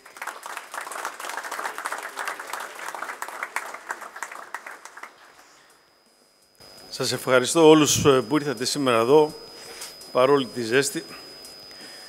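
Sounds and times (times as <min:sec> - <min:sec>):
people applauding: 0:00.0 - 0:05.8.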